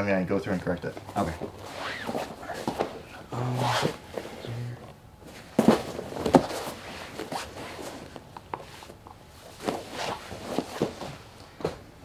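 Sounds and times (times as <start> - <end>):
bodies thudding on a mat: 5.2 - 8.0.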